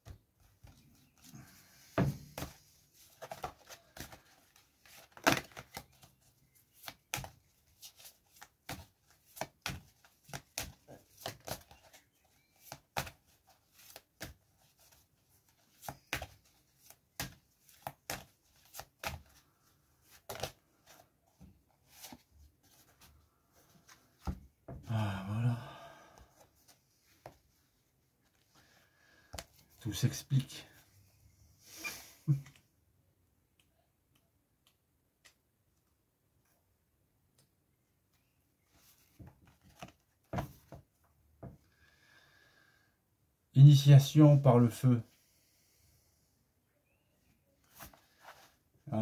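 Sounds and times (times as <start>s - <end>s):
cards being shuffled: 2.0s - 23.1s.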